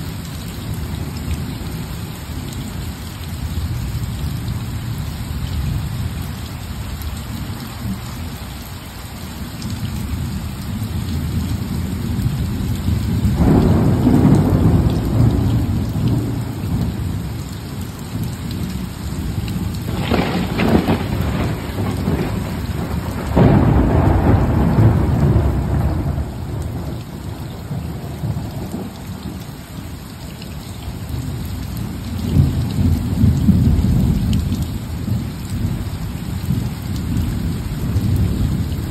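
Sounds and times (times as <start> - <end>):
steady rain falling: 0.0 - 38.9
thunder rumbling: 11.2 - 29.4, 36.5 - 38.9.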